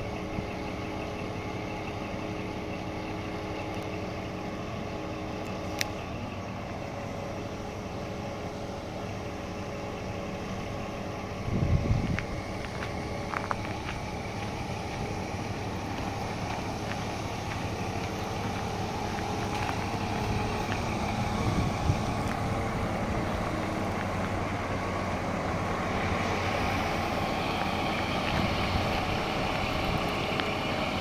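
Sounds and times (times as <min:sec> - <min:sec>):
truck diesel engine idling: 0:00.0 - 0:31.0.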